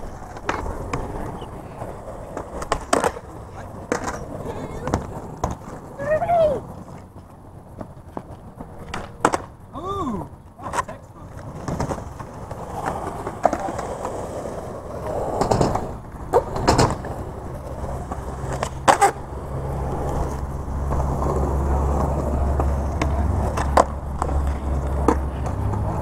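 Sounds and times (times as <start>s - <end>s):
skateboard wheels rolling: 0.0s - 26.0s
skateboard pops and clacks: 0.1s - 1.3s, 2.3s - 4.2s, 6.8s - 9.6s, 10.6s - 14.2s, 15.3s - 19.2s, 20.0s - 26.0s.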